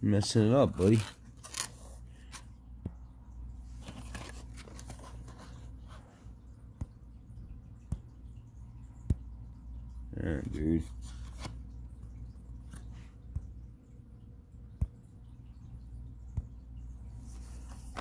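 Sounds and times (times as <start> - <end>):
low steady hum: 0.0 - 18.0
cardboard packaging rustling: 0.6 - 2.5, 3.7 - 5.9, 17.4 - 18.0.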